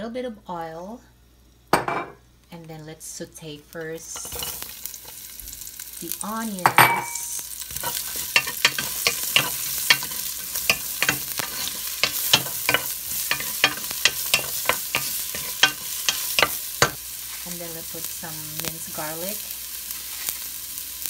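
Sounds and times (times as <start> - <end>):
onions sizzling in hot oil: 2.7 - 21.0
utensil scraping a pot: 4.2 - 5.2, 6.9 - 17.0.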